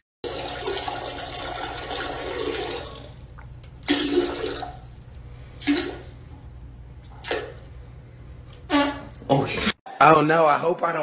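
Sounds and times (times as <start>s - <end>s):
short bursts of water: 0.2s - 6.3s
toilet flushing: 0.2s - 7.9s.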